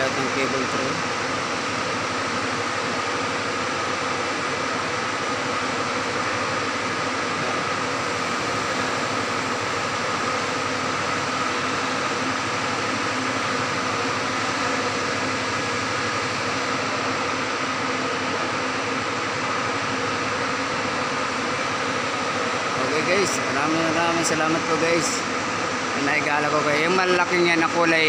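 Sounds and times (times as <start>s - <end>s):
ventilation machinery humming: 0.0s - 28.0s.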